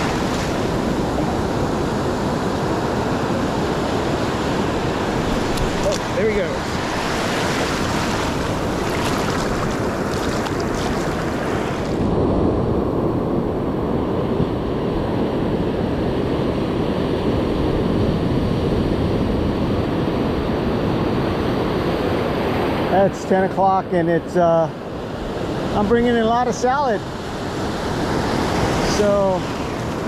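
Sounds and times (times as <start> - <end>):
ocean surf hissing: 0.0 - 12.0
wind rumbling on microphone: 0.0 - 23.0.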